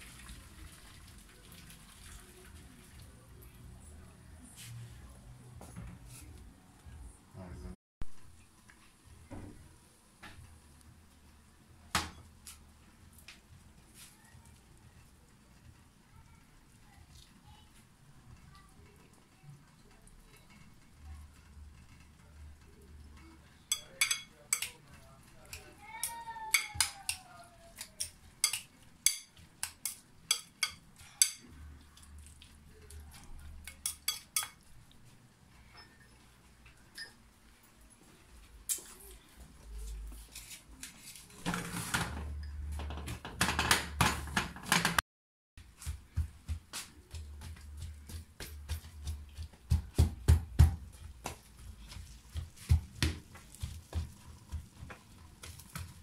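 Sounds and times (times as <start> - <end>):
metal spoon clinking against glass bowl: 23.7 - 24.8, 28.0 - 31.4, 33.7 - 34.6.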